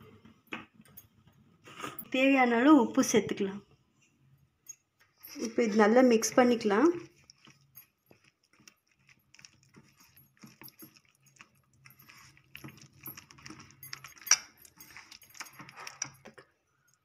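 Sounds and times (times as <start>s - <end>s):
hand stirring wet marinade: 5.4s - 16.2s.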